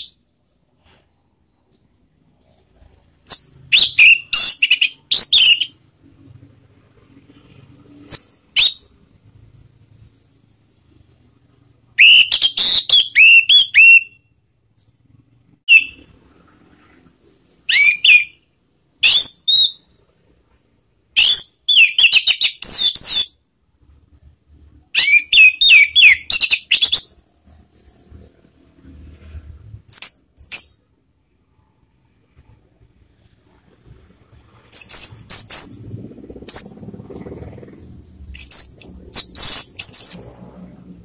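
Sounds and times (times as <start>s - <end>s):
thrush singing whistled notes: 3.3s - 6.1s, 8.0s - 9.0s, 12.0s - 14.9s, 15.7s - 16.1s, 17.2s - 20.0s, 21.2s - 23.4s, 25.0s - 30.8s, 34.4s - 40.5s.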